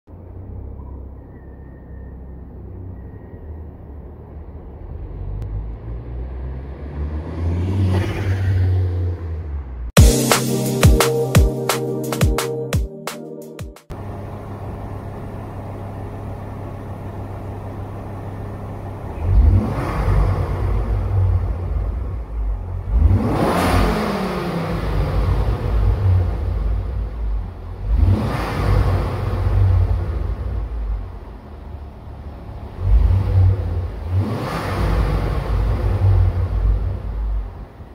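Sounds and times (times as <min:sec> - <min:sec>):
car engine driving by: 0:00.1 - 0:10.2
car engine revving: 0:01.9 - 0:11.8, 0:13.8 - 0:37.9.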